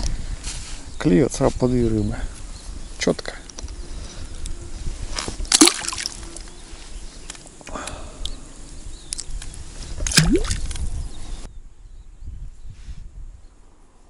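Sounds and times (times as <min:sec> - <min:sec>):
water splashing: 0:05.5 - 0:06.2, 0:10.0 - 0:10.7.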